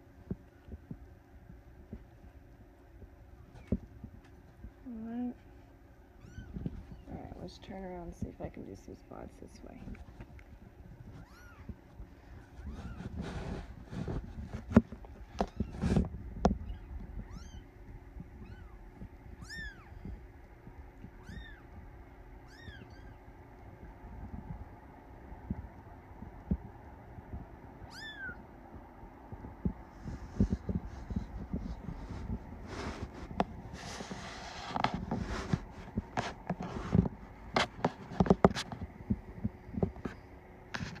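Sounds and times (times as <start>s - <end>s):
kitten mewing: 19.4s - 20.0s, 21.2s - 21.7s, 22.4s - 23.2s, 27.9s - 28.4s.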